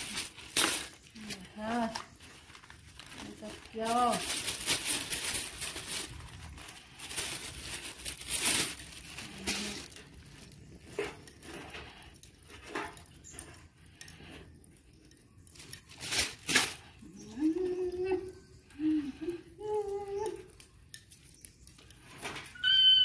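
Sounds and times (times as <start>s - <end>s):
paper rustling and crumpling: 0.0s - 13.5s, 15.0s - 17.0s.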